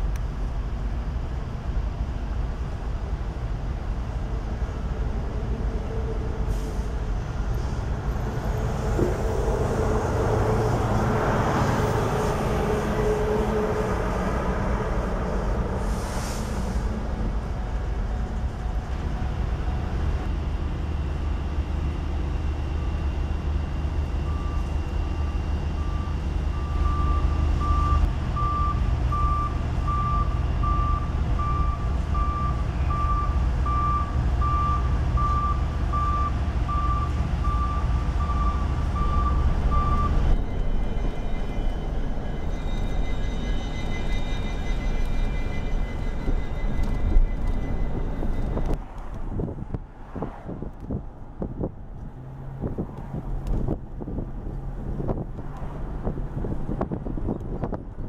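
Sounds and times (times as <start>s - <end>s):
diesel locomotive engine rumbling: 0.0s - 58.0s
backup alarm beeping: 24.0s - 48.5s.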